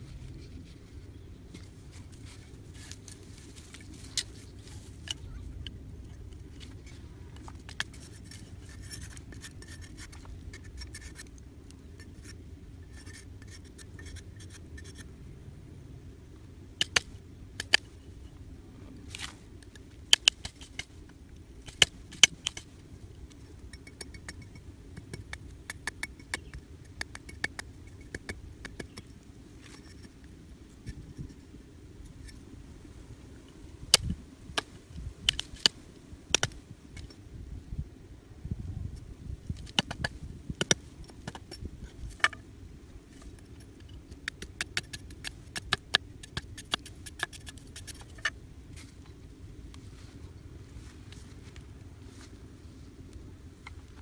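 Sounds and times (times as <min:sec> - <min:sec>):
cleaver scraping wood: 0:06.4 - 0:11.3.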